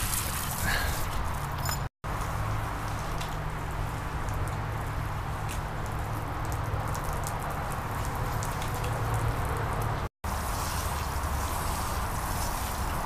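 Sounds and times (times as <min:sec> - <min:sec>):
drops pattering on wet ground: 0:02.1 - 0:10.1
sprinkler water jets hissing: 0:02.2 - 0:13.0.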